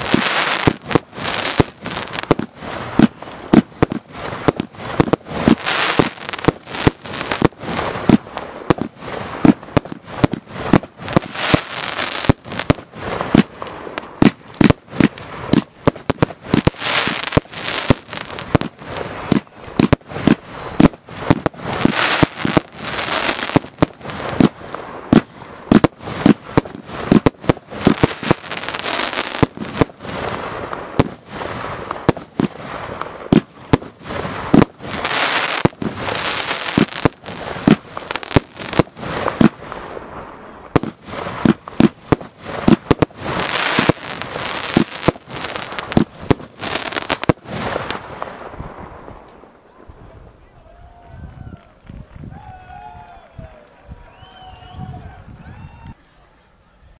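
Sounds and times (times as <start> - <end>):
fireworks hissing: 0.0 - 49.4
fireworks banging: 0.0 - 50.4.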